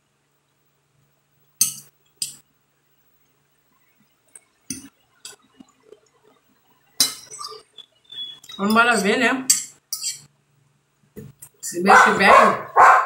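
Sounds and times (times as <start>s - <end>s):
soft eating noises: 3.0s - 8.6s
fork clinking on glass plate: 9.5s - 10.3s.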